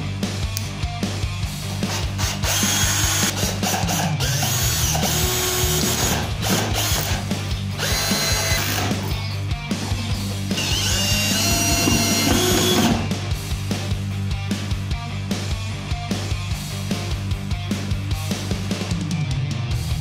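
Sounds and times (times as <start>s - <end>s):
background music: 0.0s - 20.0s
cordless drill motor whining: 1.9s - 7.2s, 7.8s - 9.2s, 10.6s - 13.1s.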